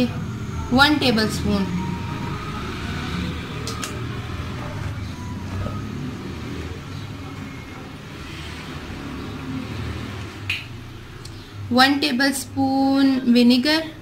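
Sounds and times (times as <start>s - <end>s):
sharp clicks: 3.6s - 4.0s.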